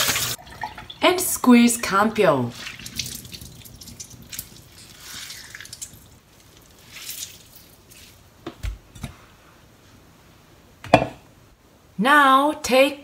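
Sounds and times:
water dripping into steel sink: 2.6s - 6.7s.

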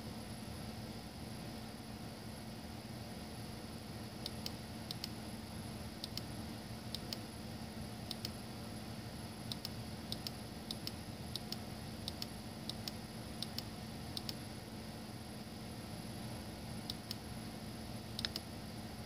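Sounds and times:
steady low hum and hiss: 0.0s - 19.0s
light sharp clicks: 18.2s - 18.5s.

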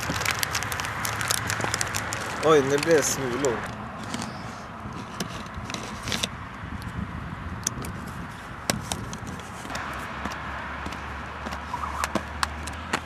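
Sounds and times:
plastic wrapper crinkling: 0.0s - 4.4s.

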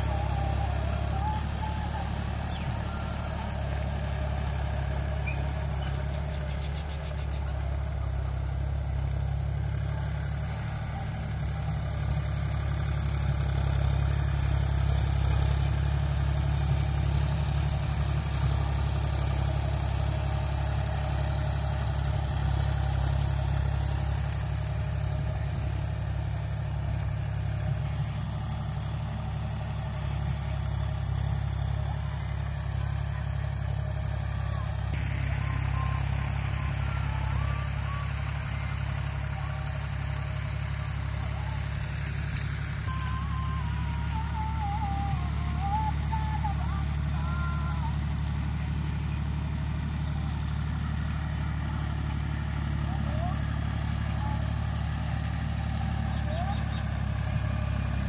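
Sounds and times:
tractor diesel engine under load: 0.0s - 58.0s
rotary tiller working soil: 13.1s - 43.2s.

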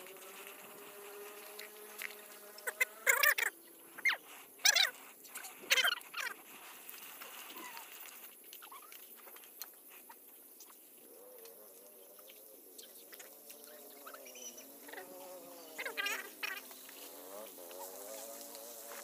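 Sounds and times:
fly buzzing: 0.0s - 4.2s, 11.1s - 19.0s.

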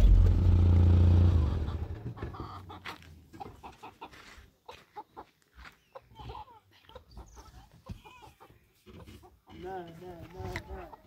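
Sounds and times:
vehicle engine hum: 0.0s - 2.4s
chickens clucking: 1.3s - 11.0s.

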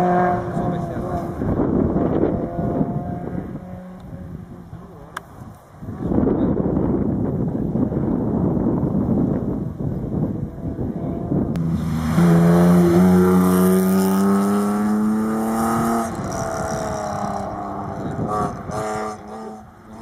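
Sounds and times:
rally car engine at high revs: 0.0s - 4.2s, 11.6s - 20.0s
wind noise on microphone: 0.0s - 20.0s.

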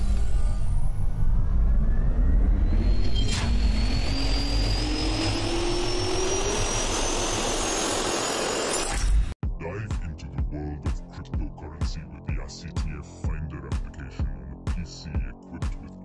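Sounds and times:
jet engine spooling up: 0.0s - 8.9s.

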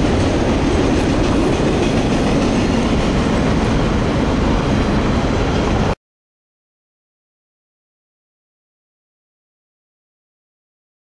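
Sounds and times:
freight train cars rolling: 0.0s - 6.0s.

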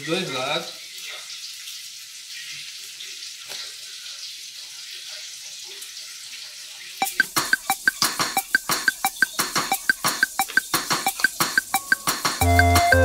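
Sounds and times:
bacon sizzling in a frying pan: 0.0s - 7.0s.

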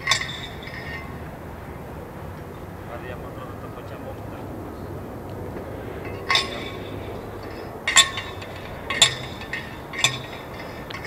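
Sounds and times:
light metallic clinks: 0.0s - 1.4s, 6.0s - 11.0s
low background hum: 0.0s - 11.0s.

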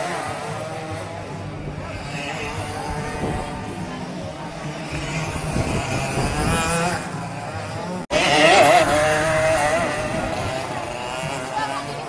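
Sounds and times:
kart engine revving: 0.0s - 12.0s.

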